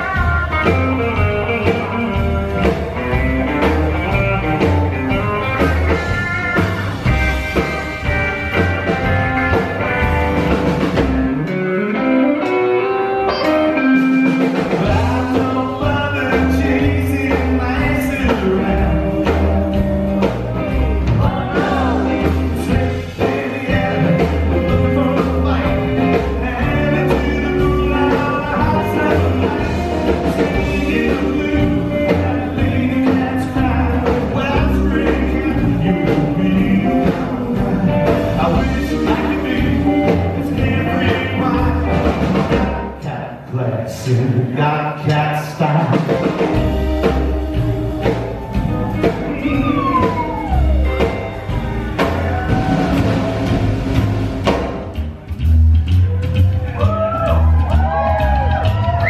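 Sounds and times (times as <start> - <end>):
electric guitar: 0.0 - 43.1, 44.2 - 59.0
drums: 0.0 - 59.0
upright bass: 0.0 - 59.0.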